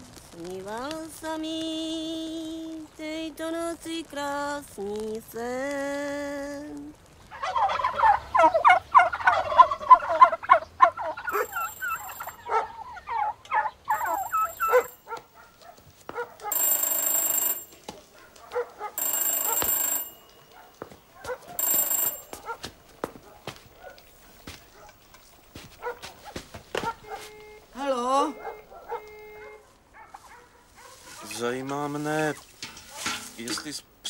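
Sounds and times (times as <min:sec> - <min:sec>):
chickens clucking and squawking: 0:07.3 - 0:14.9
telephone bell ringing: 0:11.3 - 0:12.4, 0:13.9 - 0:15.0, 0:16.5 - 0:18.0, 0:19.0 - 0:20.6, 0:21.6 - 0:22.7, 0:27.1 - 0:29.6.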